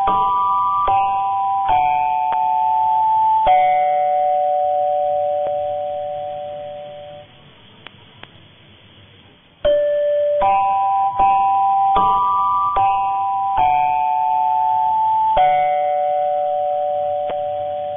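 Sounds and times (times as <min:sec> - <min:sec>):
faint radio hiss: 0:01.8 - 0:11.2.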